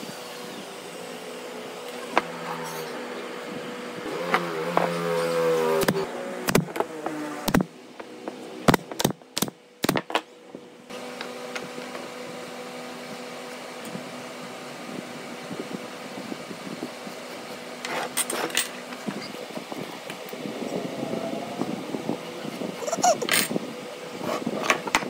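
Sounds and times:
steady mechanical hum: 0.0s - 25.0s.

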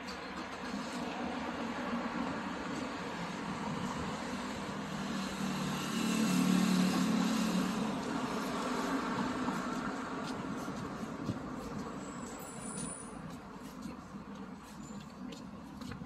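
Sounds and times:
traffic hum: 0.0s - 16.0s
car passing by: 0.7s - 13.1s.

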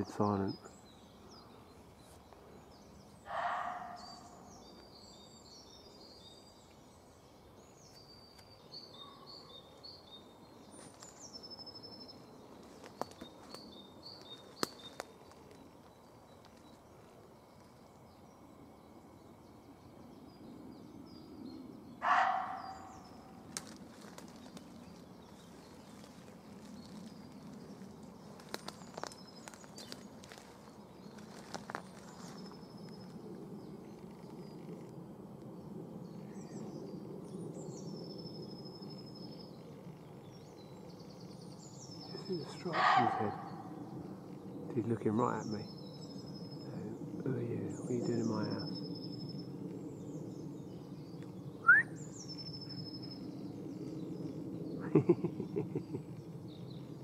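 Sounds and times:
small birds singing: 0.0s - 57.0s
deer barking: 22.0s - 22.8s, 42.7s - 43.6s.

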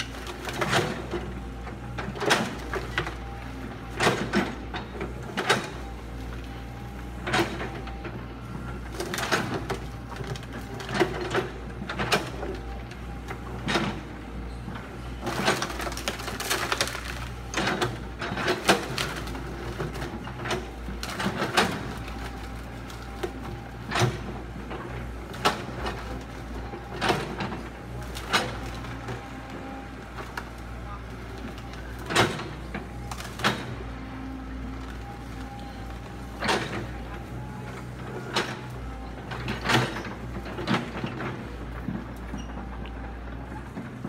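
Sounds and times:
excavator diesel engine running: 0.0s - 44.0s
bamboo stems cracking: 15.2s - 17.6s.

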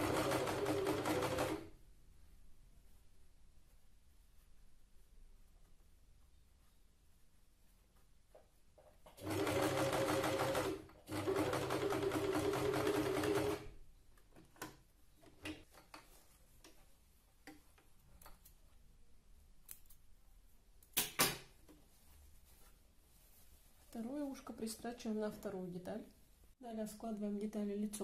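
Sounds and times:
sewing machine stitching: 0.0s - 1.7s, 9.2s - 13.7s.

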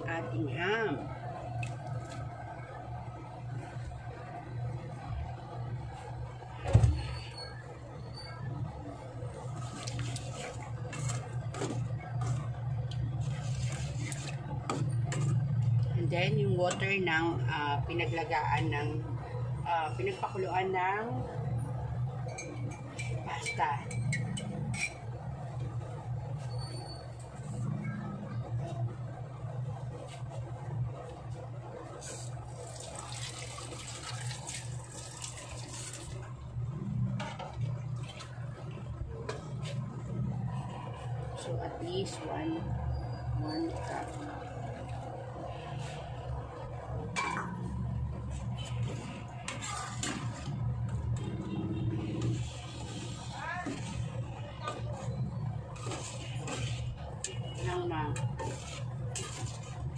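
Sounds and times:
sauce bubbling in a frying pan: 32.3s - 36.3s
low hum: 35.9s - 59.9s
spatula scraping metal pan: 48.6s - 50.6s, 55.0s - 59.9s.

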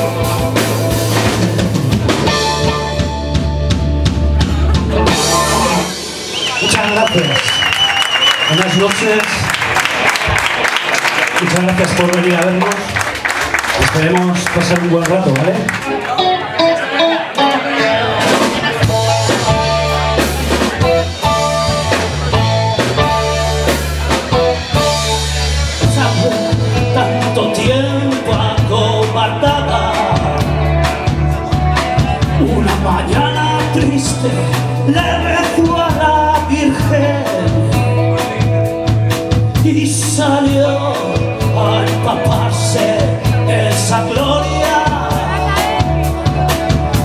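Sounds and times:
electric bass: 0.0s - 10.7s, 11.4s - 47.0s
drum kit beat: 0.0s - 47.0s
electric guitar: 0.0s - 47.0s
man singing: 25.8s - 46.8s.

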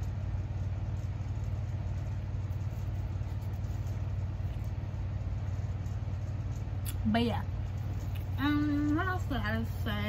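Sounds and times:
low rumbling hum: 0.0s - 10.0s.

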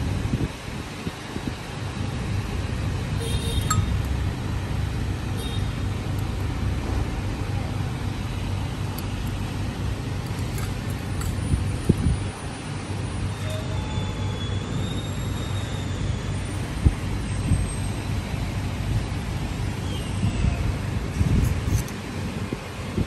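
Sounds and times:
metal tubes clinking: 3.6s - 4.1s, 10.1s - 11.6s.

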